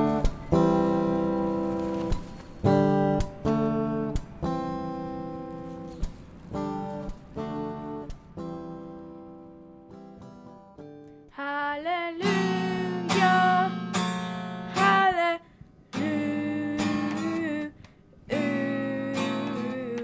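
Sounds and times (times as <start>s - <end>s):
acoustic guitar strumming: 0.0s - 11.3s, 12.1s - 17.7s, 18.3s - 20.0s
woman singing: 11.3s - 14.1s, 14.7s - 20.0s.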